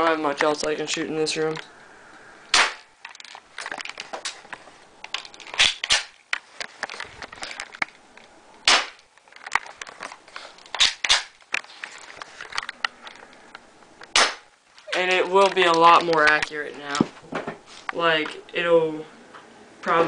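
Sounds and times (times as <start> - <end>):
airsoft pistol shots snapping: 2.5 - 2.9, 5.6 - 6.2, 8.6 - 9.0, 10.8 - 11.4, 14.1 - 14.5
small clicks and knocks: 3.0 - 8.3, 9.1 - 14.1.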